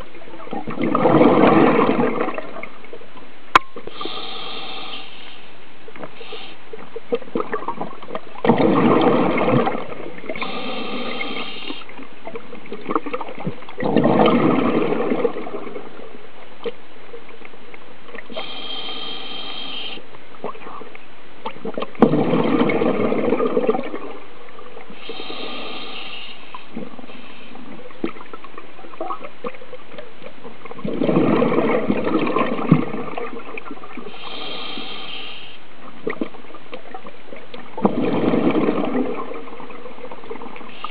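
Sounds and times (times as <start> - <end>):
bubbling exhalations: 0.5 - 2.7, 7.1 - 15.9, 21.6 - 24.2, 30.8 - 35.0, 37.7 - 40.9
buzzing hiss of inhalation: 3.9 - 5.6, 6.2 - 6.7, 10.4 - 11.9, 18.3 - 20.1, 25.0 - 27.7, 34.1 - 35.7.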